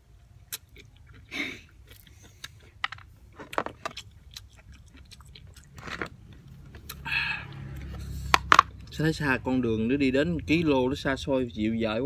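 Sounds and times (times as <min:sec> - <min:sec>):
chewing fruit mouth sounds: 0:00.2 - 0:02.8, 0:03.8 - 0:08.4.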